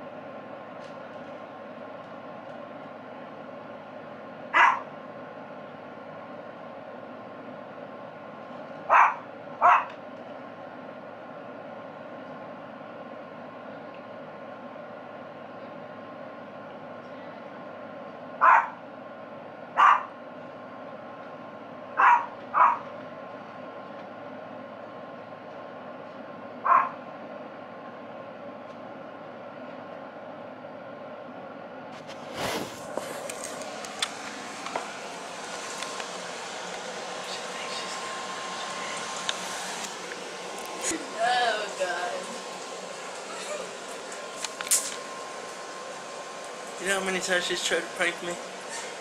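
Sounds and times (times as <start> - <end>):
dog barking: 4.5 - 4.9, 8.9 - 9.9, 18.4 - 18.8, 19.8 - 20.1, 22.0 - 22.9, 26.6 - 27.0.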